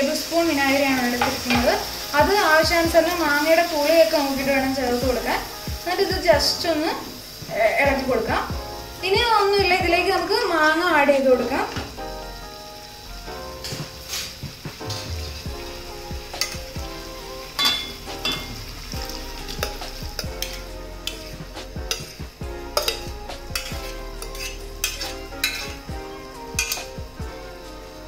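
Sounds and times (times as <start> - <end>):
food sizzling in a pan: 0.0 - 28.0
spatula knocking and scraping pan: 1.1 - 1.8, 19.5 - 26.0, 26.6 - 27.0.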